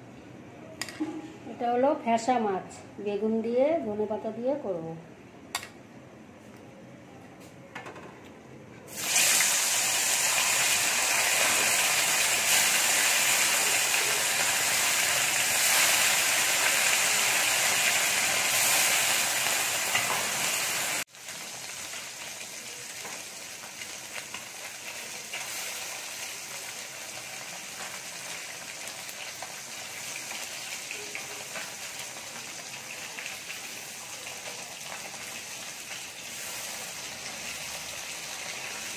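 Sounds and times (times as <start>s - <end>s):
fish sizzling in hot oil: 8.9s - 38.9s.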